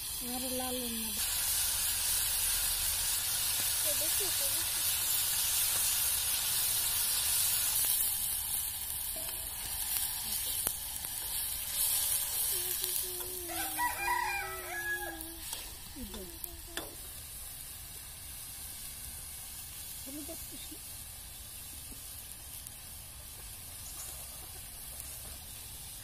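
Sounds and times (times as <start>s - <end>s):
food sizzling in oil: 0.0s - 26.0s
rooster crowing: 13.4s - 15.4s.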